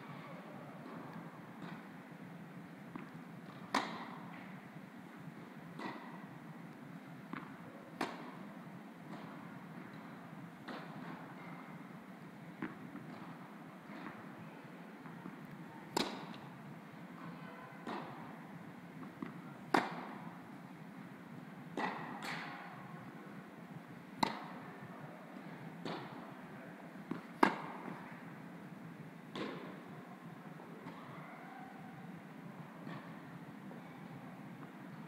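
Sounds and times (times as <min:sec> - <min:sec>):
tennis balls struck by rackets: 0:00.8 - 0:01.9, 0:02.9 - 0:04.6, 0:05.7 - 0:06.3, 0:06.9 - 0:08.5, 0:09.1 - 0:11.2, 0:12.6 - 0:14.3, 0:15.0 - 0:16.5, 0:17.2 - 0:18.3, 0:19.0 - 0:20.4, 0:21.7 - 0:22.6, 0:24.2 - 0:24.7, 0:25.4 - 0:26.2, 0:27.0 - 0:28.1, 0:29.3 - 0:29.8.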